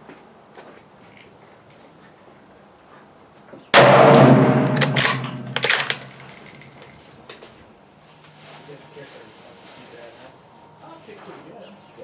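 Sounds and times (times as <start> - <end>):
rifle shot with echo: 3.8 - 6.7
rifle bolt clicks: 4.6 - 6.2.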